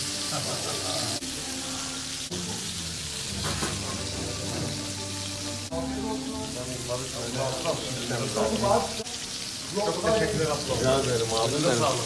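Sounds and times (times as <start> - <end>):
meat sizzling: 0.0 - 12.0.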